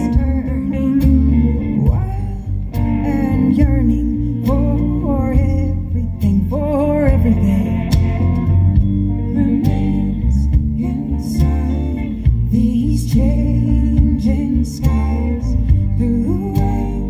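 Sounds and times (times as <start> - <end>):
folk band playing: 0.0 - 17.0
person singing: 0.0 - 17.0.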